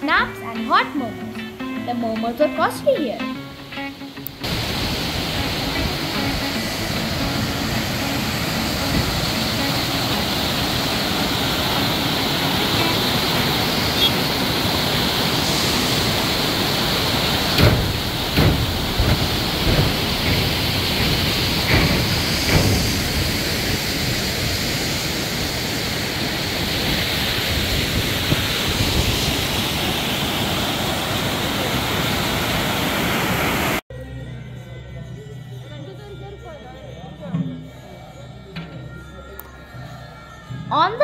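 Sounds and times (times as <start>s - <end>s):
waterfall rushing over rocks: 4.3s - 33.8s.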